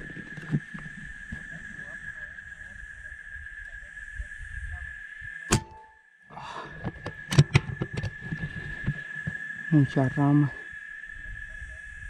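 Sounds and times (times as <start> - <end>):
high-pitched whine: 0.0 - 12.0
rifle shot: 5.5 - 6.0.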